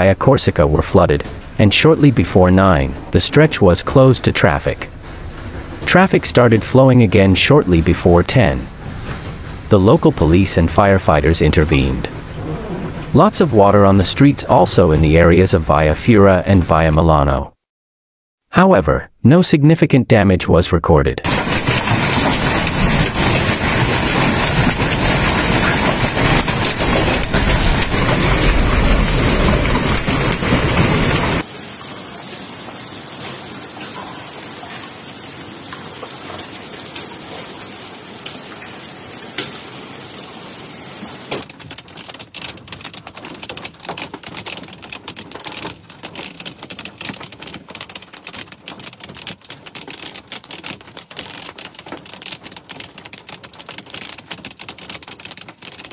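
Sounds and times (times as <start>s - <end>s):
hail and heavy rain: 21.2s - 55.9s
hailstones clicking on ground: 21.2s - 55.9s.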